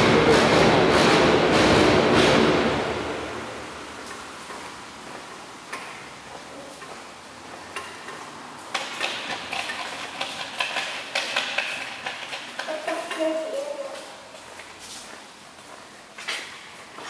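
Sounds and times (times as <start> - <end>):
passing train rumble: 0.0 - 5.7
footsteps on tiled floor: 4.0 - 17.0.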